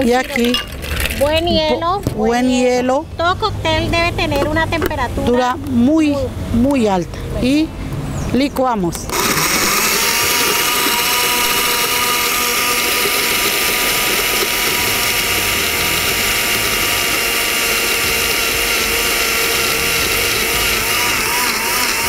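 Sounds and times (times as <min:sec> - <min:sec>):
blender motor whining: 0:09.0 - 0:22.0.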